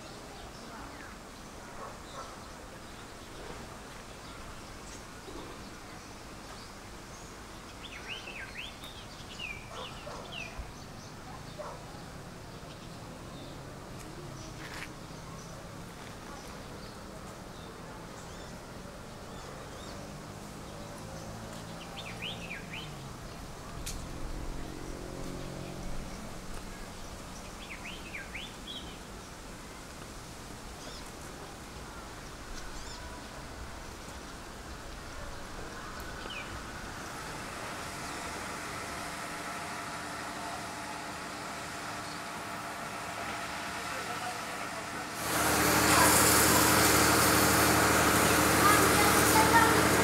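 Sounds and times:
birds chirping: 0.0s - 29.9s, 30.7s - 50.0s
outdoor background hum: 0.0s - 50.0s.

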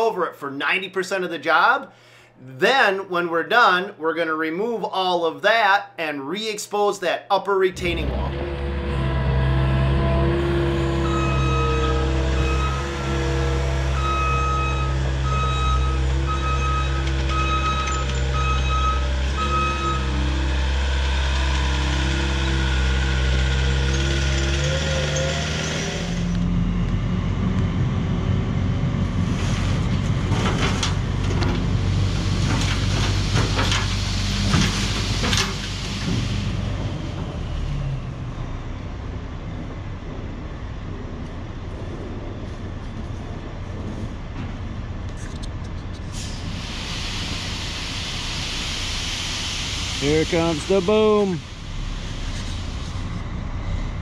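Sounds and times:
diesel engine running: 7.8s - 54.0s
reversing alarm beeping: 10.5s - 24.0s.

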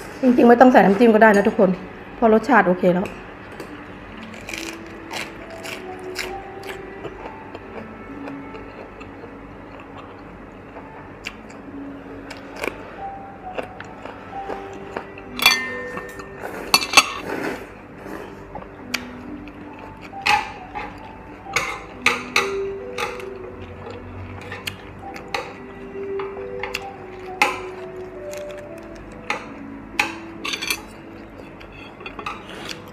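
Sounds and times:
soft background music: 0.0s - 32.9s
utensils clinking against bowls: 15.2s - 17.6s, 19.8s - 25.6s, 29.2s - 32.9s.

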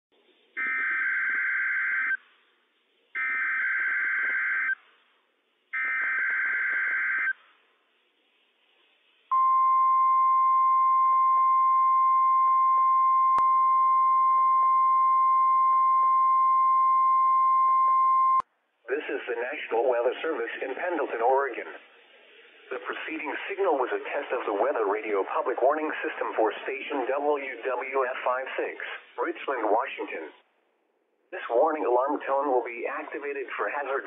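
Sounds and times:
steady warning alarm tone: 0.6s - 2.2s, 3.2s - 4.8s, 5.8s - 7.4s.

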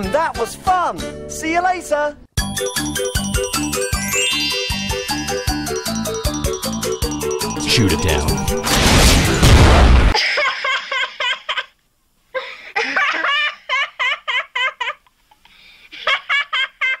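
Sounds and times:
loud blast: 7.7s - 10.2s.

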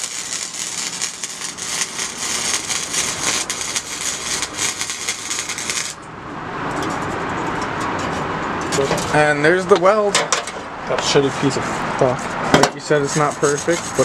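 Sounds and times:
arc welder crackling: 0.0s - 6.1s.

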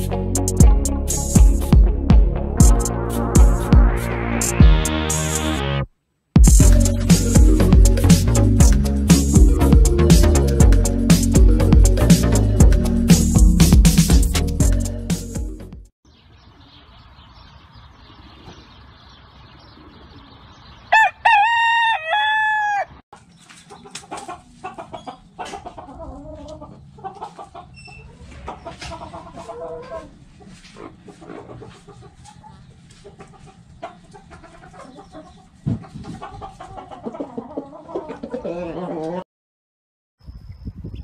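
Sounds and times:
rooster crowing: 20.9s - 23.0s
hens clucking: 23.2s - 39.2s.

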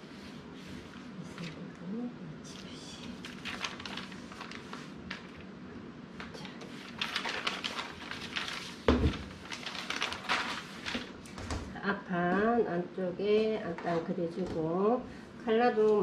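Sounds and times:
paper rustling and crinkling: 3.0s - 5.5s, 6.2s - 11.7s.

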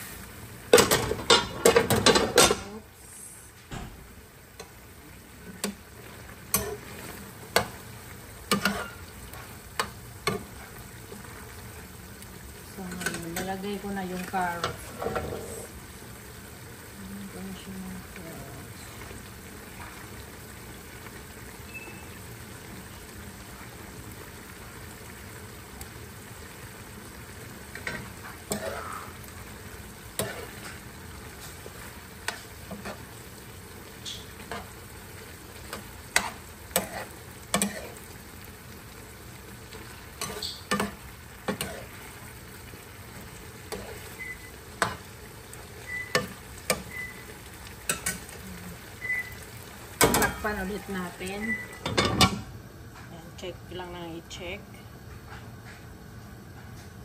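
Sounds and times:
stew sizzling in a pan: 0.0s - 57.0s
metal spoon scraping a pan: 6.5s - 7.8s, 8.5s - 10.8s, 27.8s - 29.2s, 30.2s - 30.8s, 32.2s - 33.1s, 35.7s - 38.0s, 40.2s - 42.0s.

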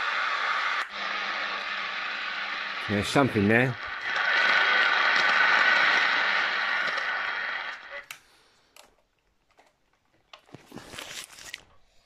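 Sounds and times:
radio static hiss: 0.0s - 8.2s.

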